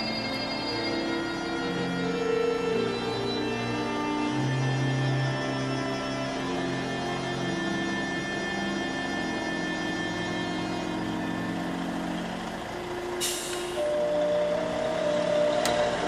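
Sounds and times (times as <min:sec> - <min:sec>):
heavy vehicle engine running: 0:00.0 - 0:16.0
music: 0:00.0 - 0:16.0
air brakes hissing: 0:13.2 - 0:14.1.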